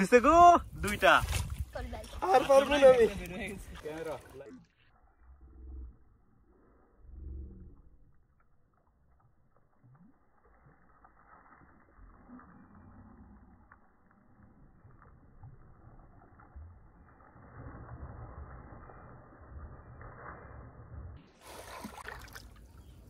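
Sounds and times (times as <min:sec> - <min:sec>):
shallow water sloshing: 0:00.9 - 0:04.6, 0:13.6 - 0:23.0.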